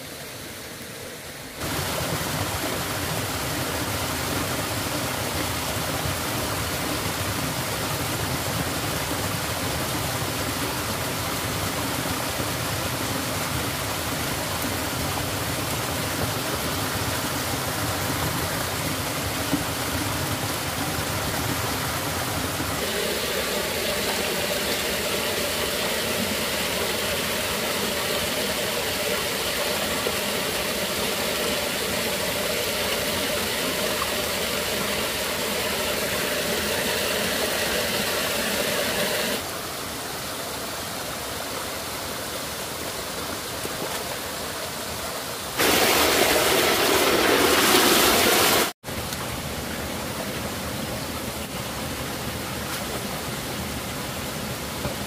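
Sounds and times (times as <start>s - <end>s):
stream running over rocks: 0.0s - 55.0s.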